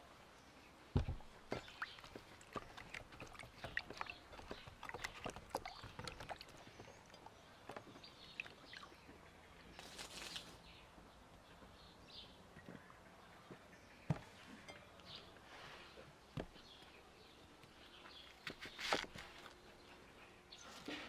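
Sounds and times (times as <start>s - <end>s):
small water splashes and drips: 1.2s - 9.2s.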